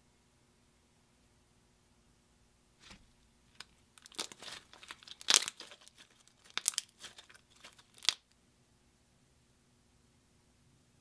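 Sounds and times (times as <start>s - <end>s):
slime crackling and popping: 3.6s - 8.3s.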